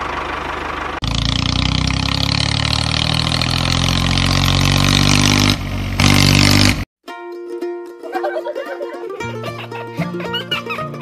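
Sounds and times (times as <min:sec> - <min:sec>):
tractor engine running: 0:00.0 - 0:06.8.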